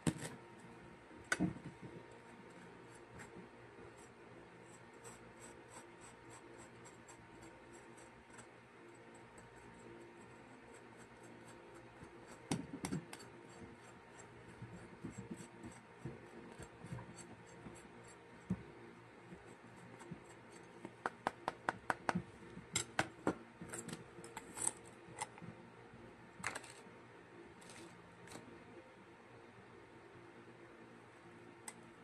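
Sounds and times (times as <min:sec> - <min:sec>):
sharp clicks and taps: 0:20.8 - 0:24.0.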